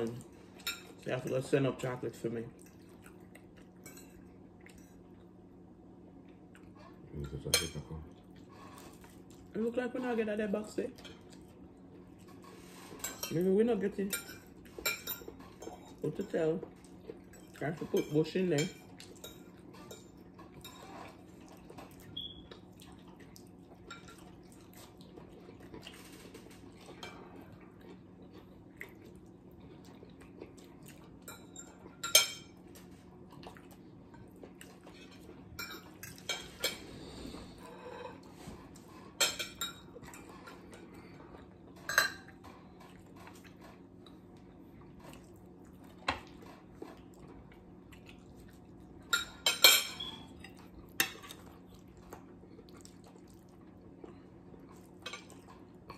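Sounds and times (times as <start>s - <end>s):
forks clinking on plates: 34.9s - 36.8s, 49.1s - 51.4s.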